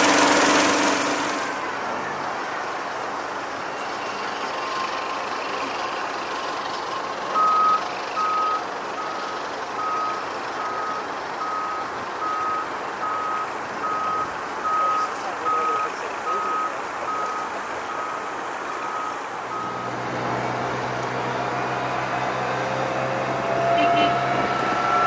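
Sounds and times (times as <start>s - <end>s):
reversing alarm beeping: 3.8s - 6.0s, 6.8s - 20.0s, 23.6s - 25.0s.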